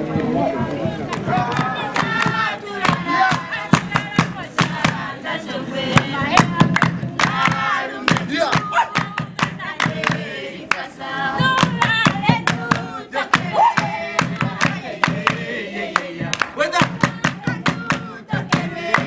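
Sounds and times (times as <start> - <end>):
group singing and chanting: 0.1 - 19.0
hand-clapping: 1.1 - 5.1, 5.9 - 10.9, 11.5 - 19.0
hand drum: 5.8 - 10.3, 11.4 - 15.5, 16.2 - 19.0.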